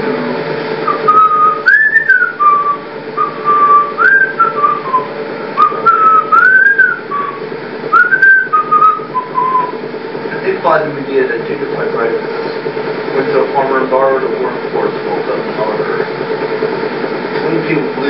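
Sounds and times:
person whistling a tune: 0.9 - 9.7.

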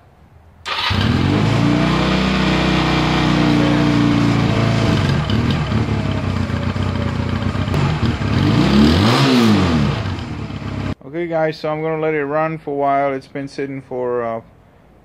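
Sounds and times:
motorcycle engine fast idle: 4.8 - 8.3.

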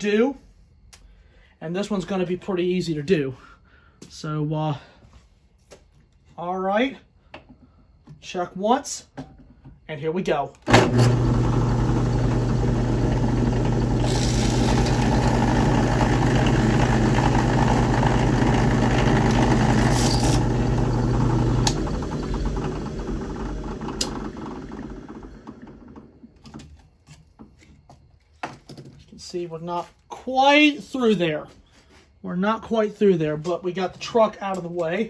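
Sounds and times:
drill bit grinding metal: 10.7 - 25.7
drill press motor humming: 10.7 - 26.6.

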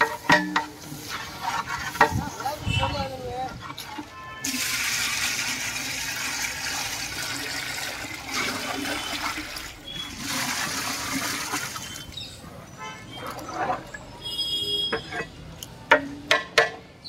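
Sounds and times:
water pouring into a pot: 4.4 - 12.2.

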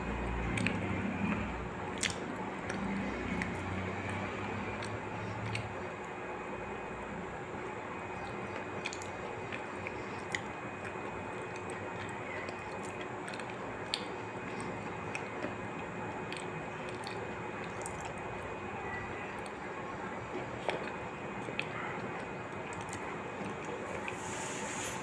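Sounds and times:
person chewing food: 0.4 - 6.2, 7.6 - 18.6, 19.3 - 24.5.

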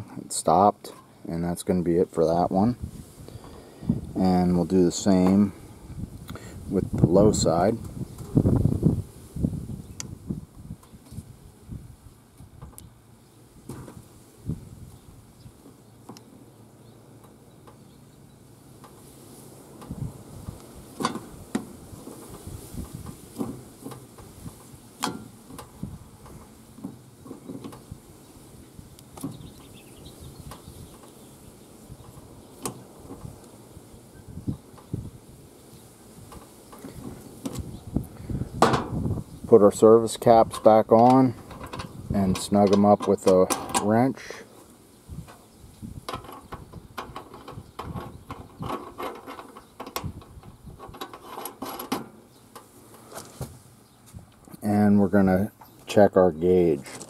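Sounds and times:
wrench clicking and scraping metal: 46.1 - 52.7.

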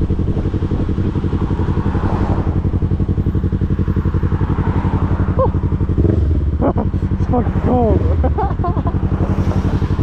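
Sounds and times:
motorcycle engine running: 0.0 - 10.0.

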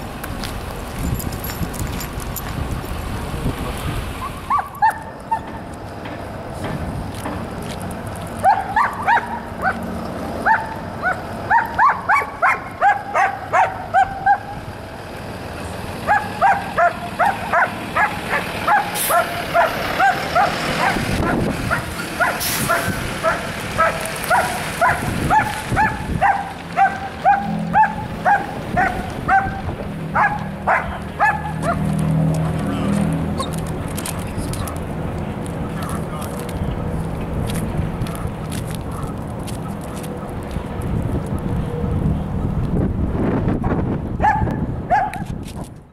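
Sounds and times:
vehicle passing: 0.0 - 45.9
dog barking excitedly: 4.2 - 5.6, 8.4 - 9.8, 10.4 - 14.6, 16.0 - 31.9, 44.2 - 45.3.

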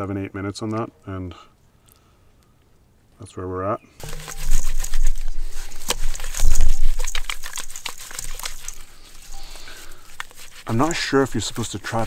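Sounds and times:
octopus crinkling when rubbed: 4.0 - 12.0.

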